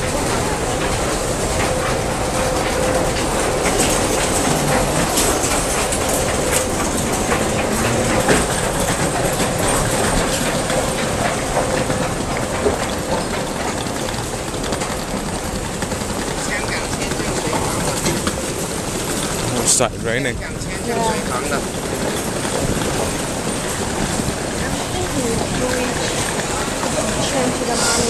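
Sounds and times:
steady hum: 0.0 - 28.0.

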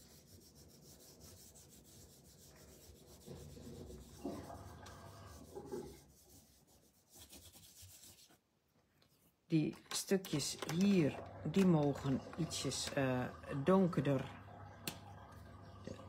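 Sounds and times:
wipe rubbing on cardstock: 0.0 - 8.4.

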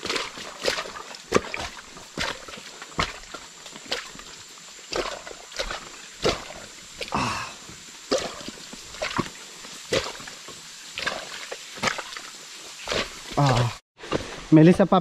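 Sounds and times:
footsteps on muddy trail: 0.0 - 15.0
heavy breathing: 7.1 - 7.7.

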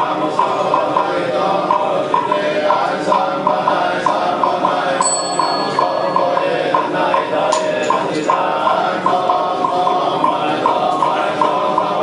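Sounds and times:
monks chanting in unison: 0.0 - 12.0
small bell ringing: 5.0 - 6.7.

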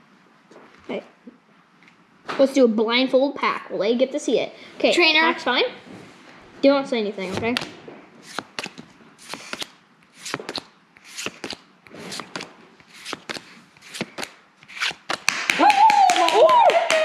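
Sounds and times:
cards sliding off a stack: 7.6 - 15.3.

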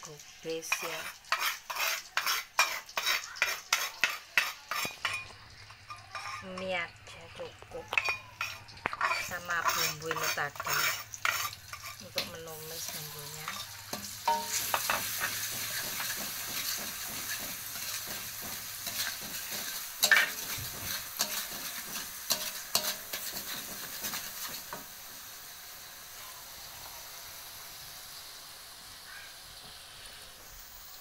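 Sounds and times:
paste sizzling in hot oil: 0.0 - 31.0
metal spatula scraping wok: 0.5 - 25.0.

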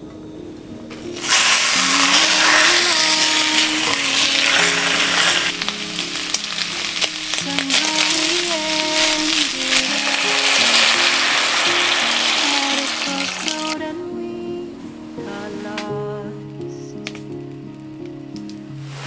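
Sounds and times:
meat sizzling in hot oil: 0.9 - 13.8
tongs stirring in pot: 1.2 - 13.5.

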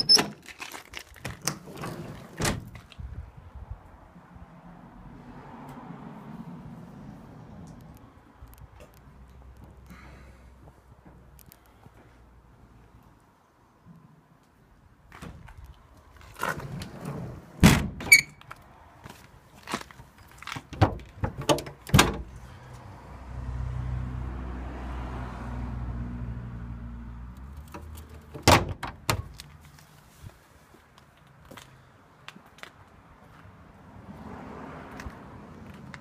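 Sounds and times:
thunks and rattles from truck cab: 1.2 - 3.0, 15.1 - 15.6, 16.4 - 18.4, 20.4 - 22.4, 27.6 - 29.5.

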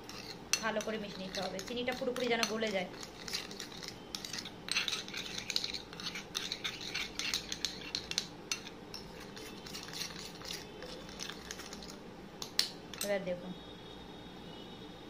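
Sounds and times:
metal spoon scraping ceramic bowl: 0.0 - 12.0.

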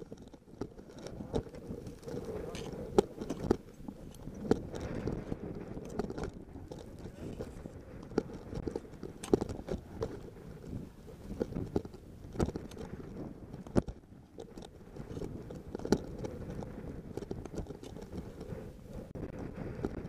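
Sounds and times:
steady low rumble: 0.0 - 14.1.

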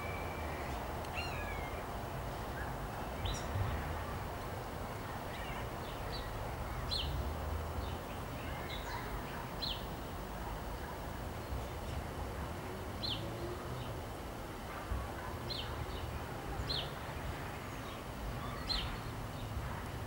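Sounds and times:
songbirds chirping: 0.0 - 14.7, 15.3 - 19.6.

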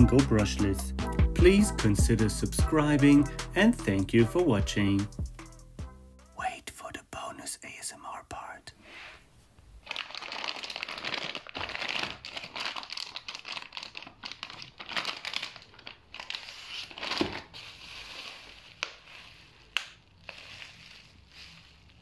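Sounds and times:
plastic bags crinkling: 9.8 - 22.0.

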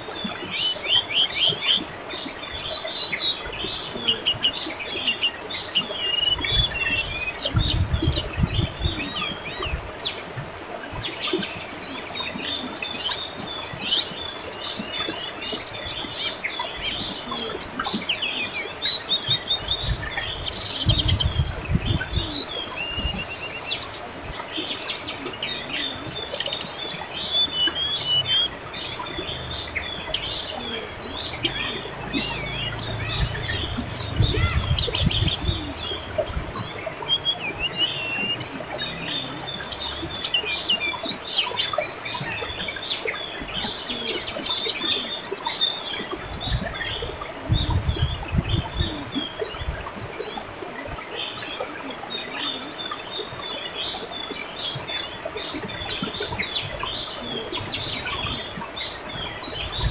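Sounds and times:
river babbling: 0.0 - 59.9
small birds chirping and trilling: 0.0 - 59.9
low rumble: 28.0 - 39.9.

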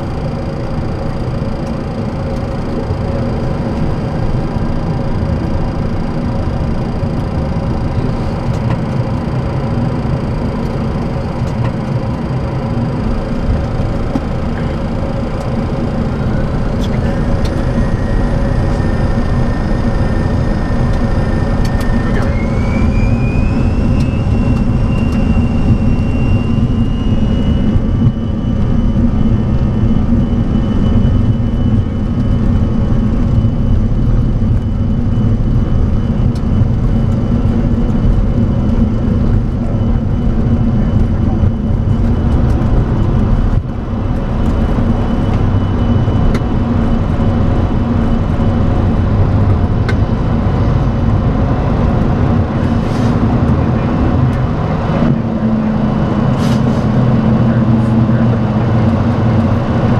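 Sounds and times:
jet engines whining: 0.0 - 59.9
loud engine rumble: 0.0 - 59.9.

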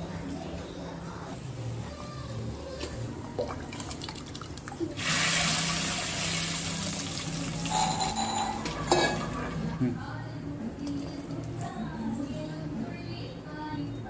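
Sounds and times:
shallots frying in oil: 5.0 - 8.4.

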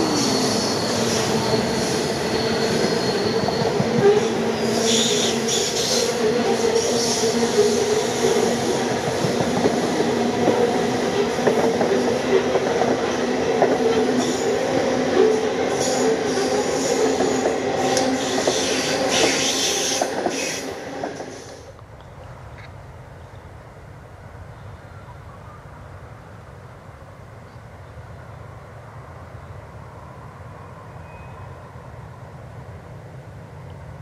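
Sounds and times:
wheels squealing: 0.0 - 8.5.

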